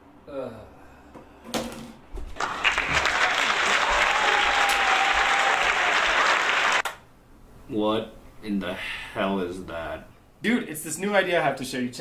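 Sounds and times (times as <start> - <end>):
crowd applause: 2.4 - 6.9.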